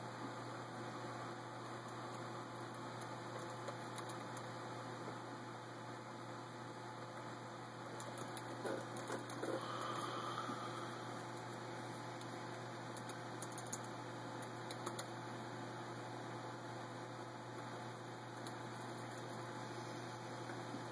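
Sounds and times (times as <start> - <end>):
low electrical hum: 0.0 - 20.9.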